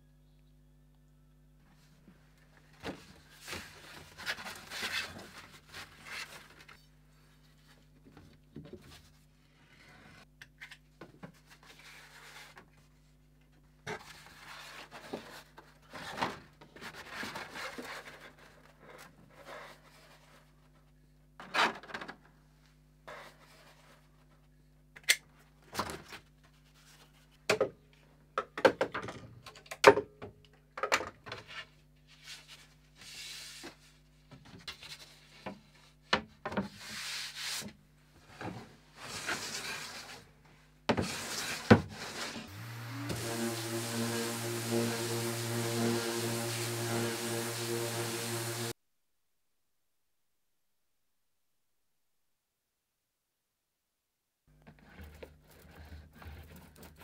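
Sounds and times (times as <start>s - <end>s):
faint steady hum: 0.0s - 4.1s.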